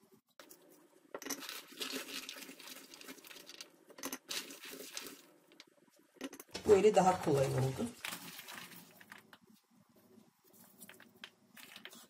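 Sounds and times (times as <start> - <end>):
berries crushed in a metal bowl: 1.2 - 5.3, 6.6 - 9.3.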